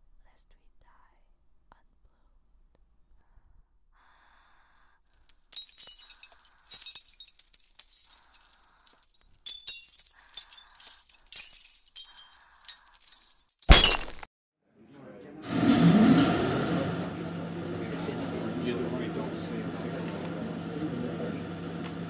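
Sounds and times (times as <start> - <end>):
glass clinking and tinkling: 5.1 - 14.3
loud glass shatter: 5.2 - 14.3.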